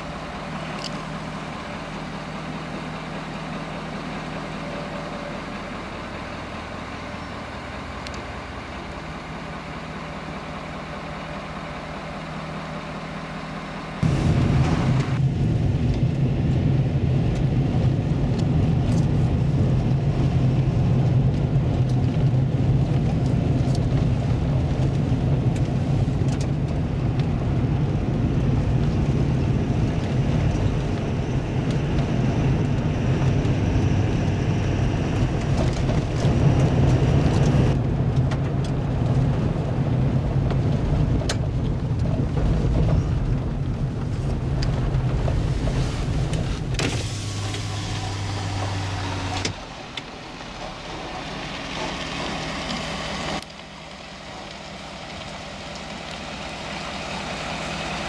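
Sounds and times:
road hiss: 0.0 - 15.7, 45.3 - 58.0
engine and tyre rumble: 0.0 - 58.0.

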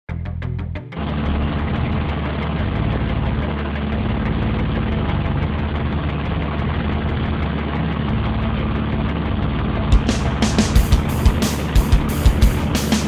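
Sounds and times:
aircraft engine and propeller drone: 1.0 - 13.0.

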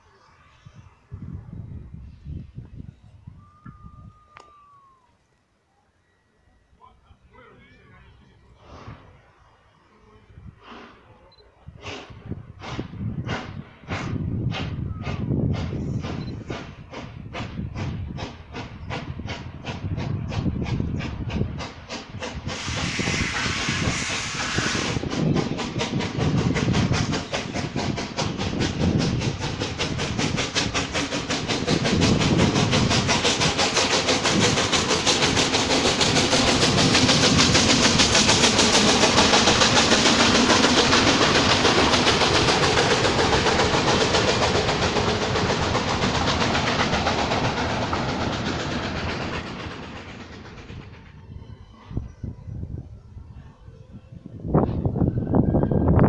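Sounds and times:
steam locomotive passing: 0.0 - 56.0
train wheels clattering on rails: 11.7 - 52.1.

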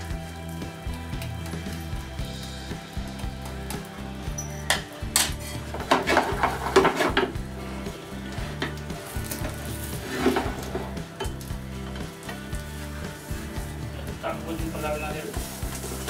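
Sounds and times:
omelet sizzling: 0.0 - 16.0
metal spatula scraping a frying pan: 4.4 - 13.6.

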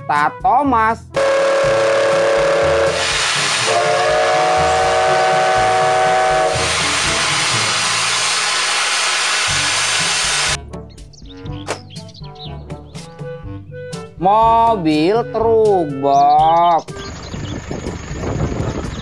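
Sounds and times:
steam whistle: 1.2 - 10.6
steam venting hiss: 1.6 - 10.6.

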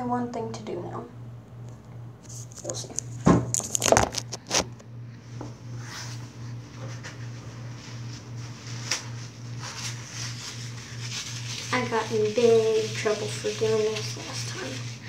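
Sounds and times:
phone being handled: 2.5 - 4.8.

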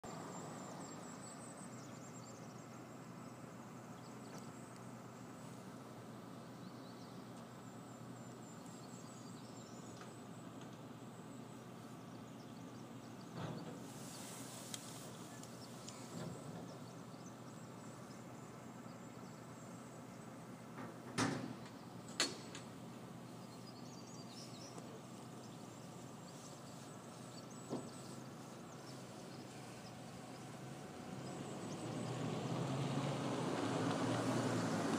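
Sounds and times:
car cabin road noise: 21.6 - 34.9.

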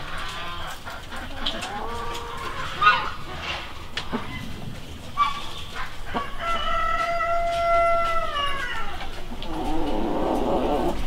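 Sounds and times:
rooster crowing: 6.3 - 9.0.

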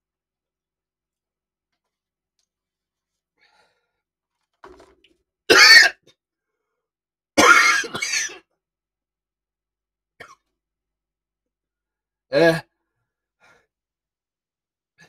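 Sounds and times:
man coughing: 7.4 - 8.4.

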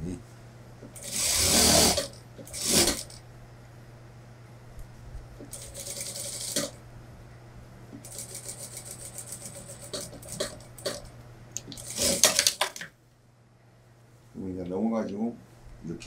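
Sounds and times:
sewing machine stitching: 1.0 - 3.2, 5.5 - 6.8, 11.8 - 12.6.

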